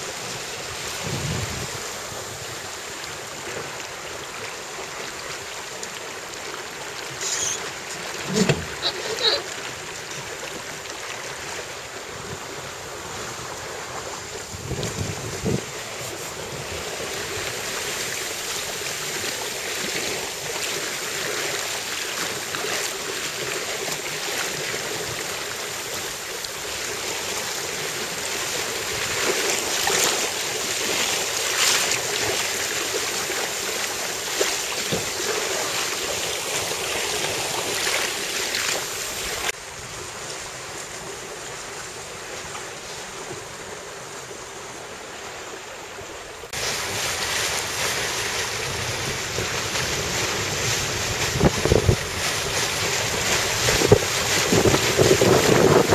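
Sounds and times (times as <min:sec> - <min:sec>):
choppy water rushing and slapping: 0:00.0 - 0:55.9
wind buffeting microphone: 0:00.2 - 0:02.6, 0:12.1 - 0:17.9, 0:46.5 - 0:55.9.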